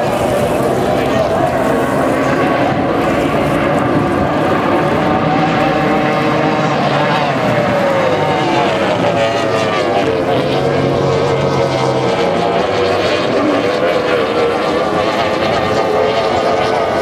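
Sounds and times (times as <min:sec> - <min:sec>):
outboard engine whining: 0:00.0 - 0:17.0.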